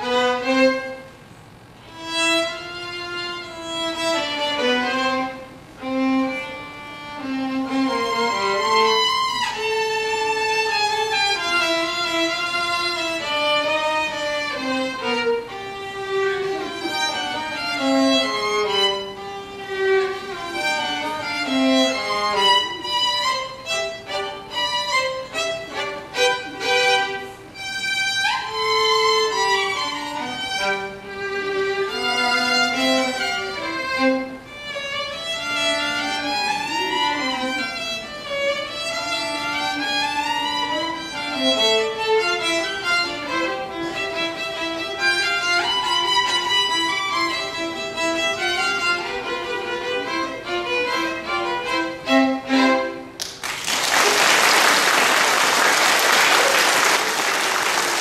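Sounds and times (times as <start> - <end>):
violin duet: 0.0 - 53.4
audience applauding: 53.2 - 58.0.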